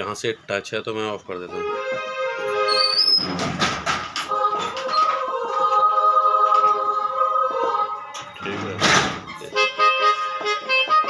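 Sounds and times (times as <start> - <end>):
keyboard saxophone notes: 1.5 - 3.6, 9.4 - 11.0.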